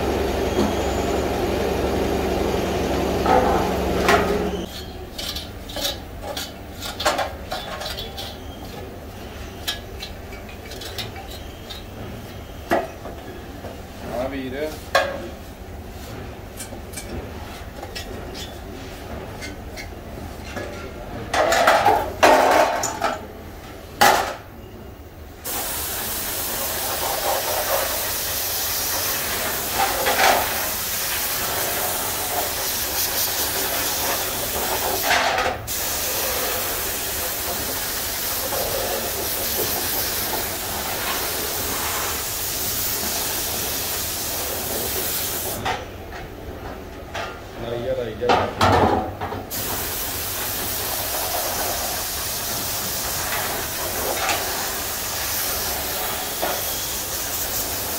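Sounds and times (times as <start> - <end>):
spray gun hissing: 25.4 - 35.0, 35.7 - 45.6, 49.5 - 57.9.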